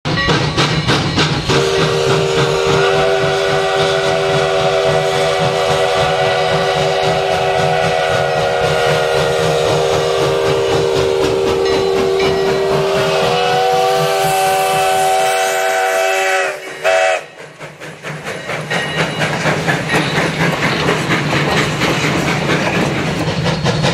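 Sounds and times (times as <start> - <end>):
steam locomotive running: 0.1 - 23.9
steam whistle chord: 0.6 - 17.4.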